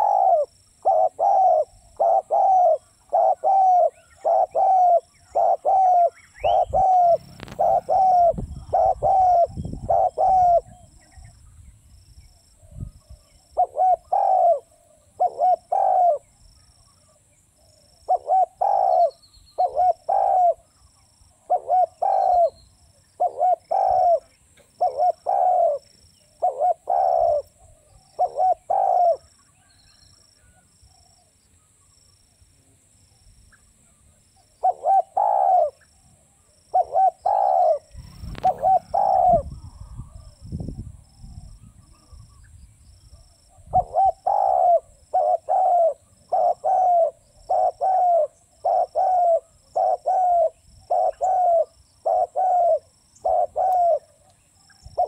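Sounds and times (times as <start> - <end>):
dove cooing: 0.0 - 11.3, 13.5 - 16.4, 17.8 - 20.7, 21.4 - 22.6, 23.2 - 29.4, 34.6 - 35.9, 36.7 - 40.4, 43.2 - 54.2
faint high bird chirp: 0.0 - 32.5, 33.1 - 55.0.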